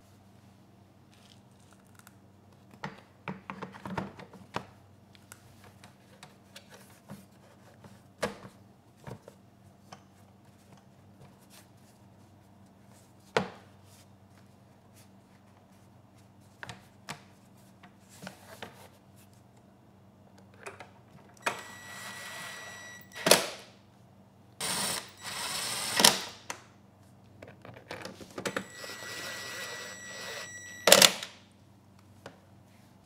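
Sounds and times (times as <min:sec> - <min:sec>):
cordless drill whining: 0:21.5 - 0:23.4, 0:24.6 - 0:26.3, 0:28.5 - 0:30.5.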